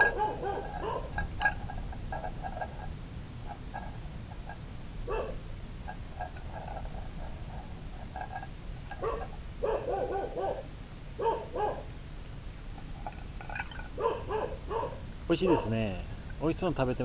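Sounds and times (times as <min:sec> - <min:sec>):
animal whining: 0:00.0 - 0:01.3.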